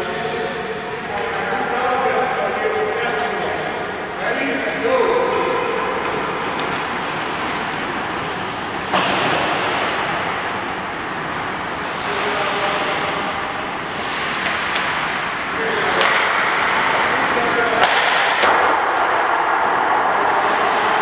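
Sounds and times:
hockey sticks and puck clacking: 1.0 - 1.8, 4.4 - 21.0
skating hiss: 6.4 - 17.2.

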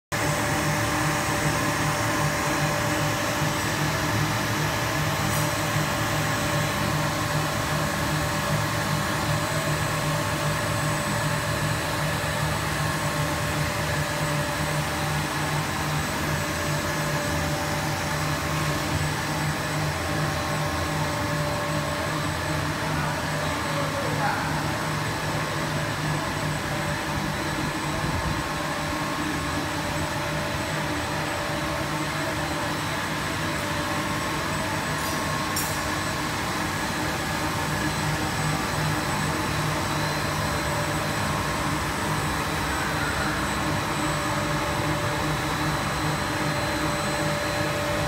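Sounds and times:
blower air rush: 0.2 - 48.0
steady whining tones: 0.2 - 48.0.

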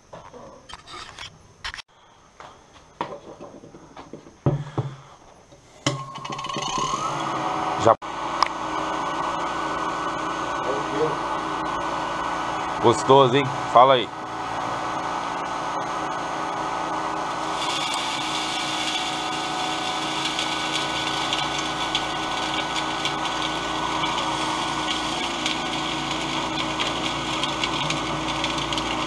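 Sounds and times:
cotton candy machine motor hum: 5.9 - 29.0.

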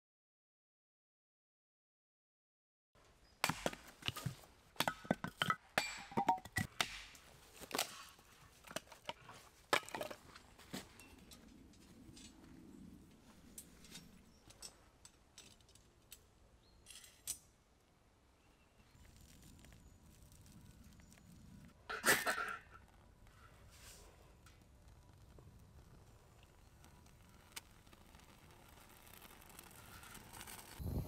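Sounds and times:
firewood being split: 6.6 - 10.5, 24.0 - 30.8.

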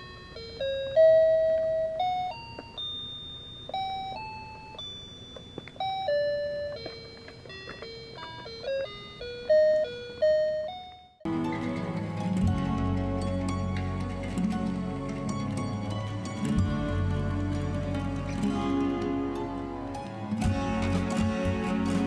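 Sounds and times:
toy keyboard chime-like tune: 0.0 - 11.3
background music: 11.3 - 22.0.

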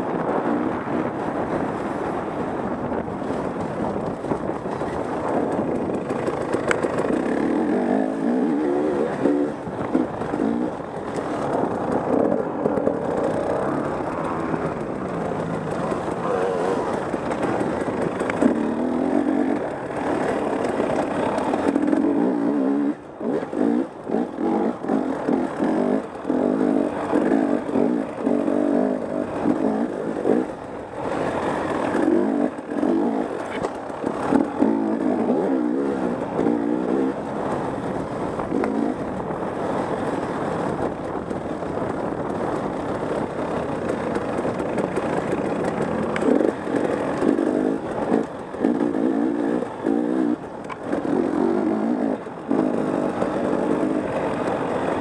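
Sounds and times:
dirt bike engine revving: 4.8 - 37.3, 44.7 - 55.0.

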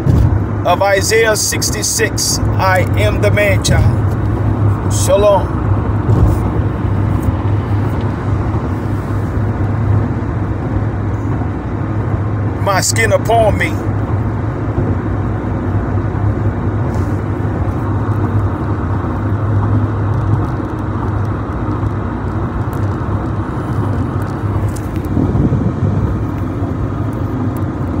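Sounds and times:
car road noise drone: 0.0 - 28.0
tyre noise rushing: 3.6 - 9.9.

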